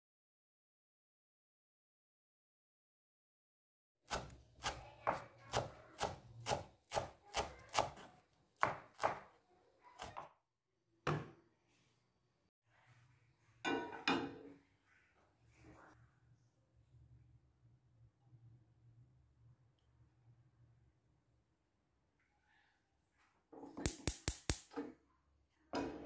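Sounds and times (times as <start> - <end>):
knife chopping on wooden board: 4.1 - 9.3.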